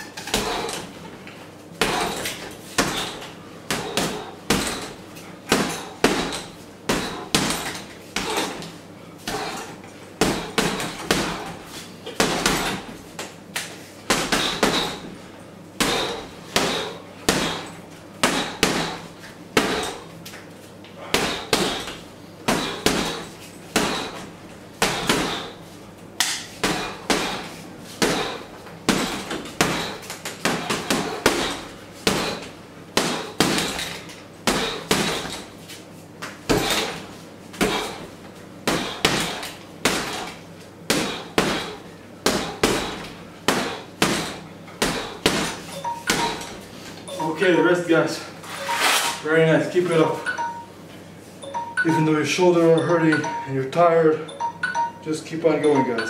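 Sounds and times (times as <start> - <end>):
gloves punching heavy bag: 0.3 - 1.0, 1.8 - 13.3, 14.1 - 15.2, 15.8 - 20.1, 21.0 - 25.6, 26.6 - 35.6, 36.5 - 46.6.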